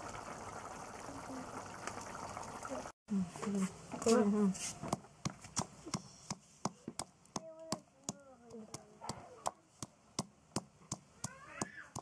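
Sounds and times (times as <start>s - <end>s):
wooden pestle pounding in mortar: 4.8s - 12.0s.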